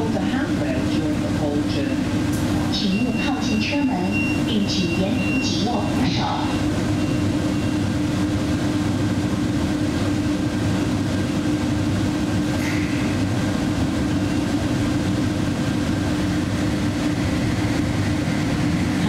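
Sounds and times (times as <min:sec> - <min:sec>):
shuttle train running: 0:00.0 - 0:19.0.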